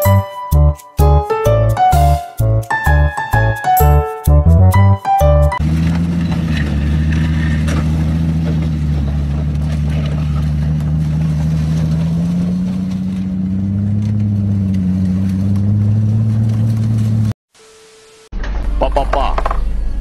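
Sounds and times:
car creeping over gravel: 5.6s - 17.4s
car engine at low revs: 5.6s - 17.4s.

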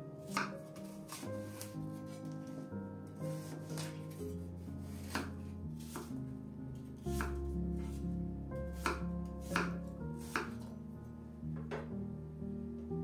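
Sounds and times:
background music: 0.0s - 13.0s
knife chopping on cutting board: 0.3s - 2.1s, 3.3s - 4.0s, 5.0s - 6.1s, 7.1s - 8.0s, 8.8s - 10.7s.

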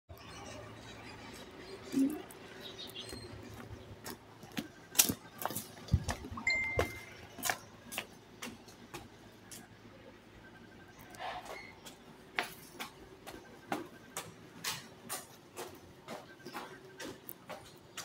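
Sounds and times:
footsteps on paving: 2.6s - 9.7s, 11.9s - 18.0s.

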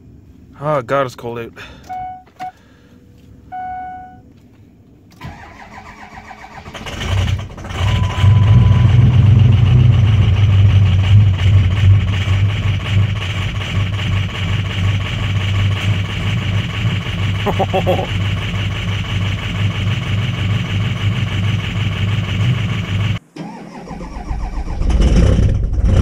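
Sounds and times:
diesel engine idling loudly: 6.8s - 23.2s.

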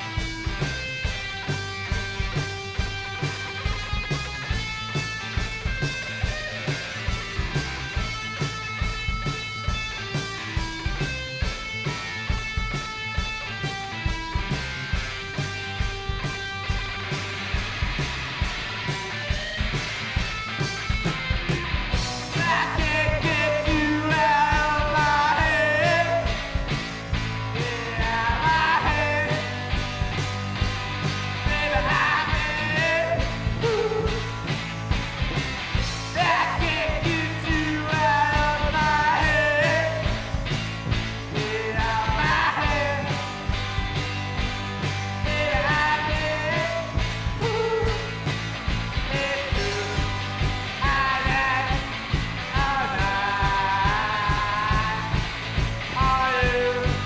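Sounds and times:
rock and roll band playing: 0.0s - 57.0s
man singing lead vocal: 22.1s - 26.7s, 27.5s - 29.7s, 31.4s - 34.4s, 36.0s - 40.4s, 41.3s - 43.4s, 45.2s - 48.2s, 49.0s - 57.0s.

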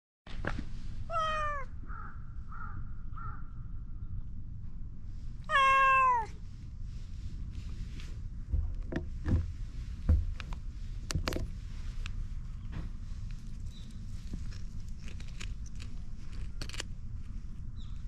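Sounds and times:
low background rumble: 0.3s - 18.0s
cat meowing: 1.1s - 1.7s, 5.5s - 6.4s.

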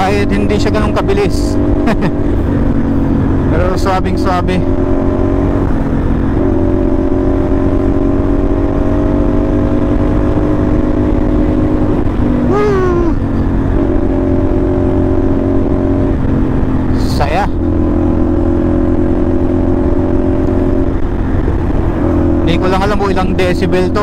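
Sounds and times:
motorcycle engine cruising: 0.0s - 24.0s
wind rushing over microphone: 0.0s - 24.0s.

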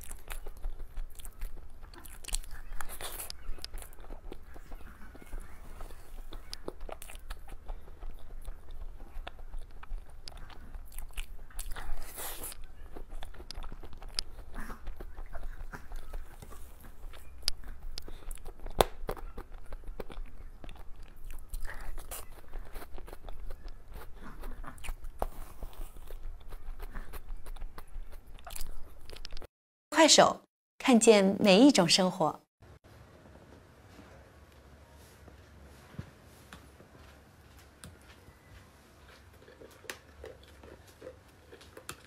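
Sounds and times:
person chewing cake: 0.0s - 29.5s, 37.8s - 42.0s
wet mouth clicks: 6.1s - 29.5s.

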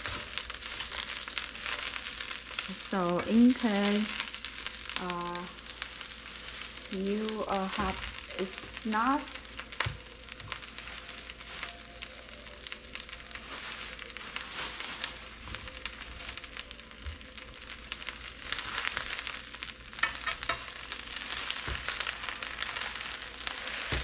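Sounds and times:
greens sizzling in a pan: 0.0s - 24.0s.

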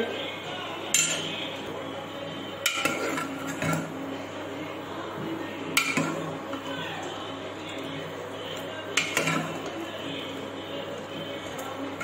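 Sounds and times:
metal spoon scraping a pot: 2.6s - 4.0s, 5.7s - 6.6s, 8.9s - 9.8s.

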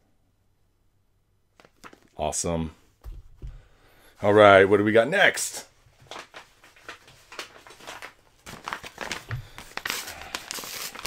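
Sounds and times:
faint taps: 3.0s - 3.7s
paper packaging crinkling: 6.0s - 11.0s.

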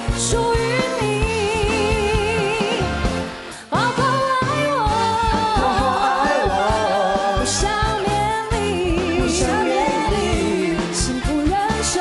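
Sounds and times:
woman singing pop ballad: 0.0s - 12.0s
instrumental accompaniment: 0.4s - 12.0s
steady drum beat: 4.9s - 12.0s.

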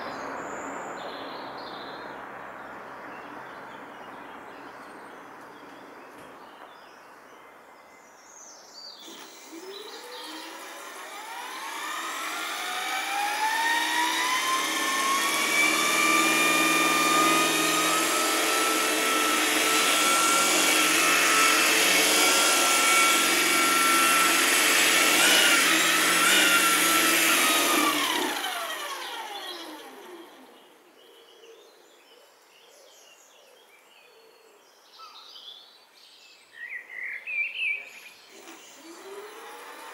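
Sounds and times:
birds chirping faintly: 0.0s - 39.9s
model helicopter motor whine: 9.0s - 30.6s, 38.2s - 39.9s.

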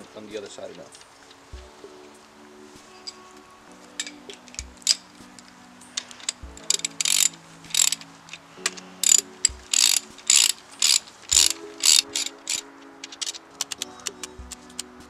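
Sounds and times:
hand ratchet clicking: 6.0s - 8.0s, 8.6s - 13.9s.

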